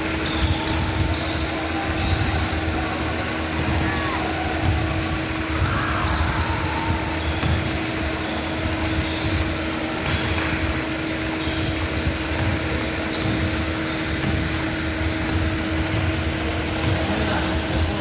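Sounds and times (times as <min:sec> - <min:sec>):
steady mechanical hum: 0:00.0 - 0:18.0
shoe squeaks on wooden court: 0:07.2 - 0:10.4, 0:11.3 - 0:16.2.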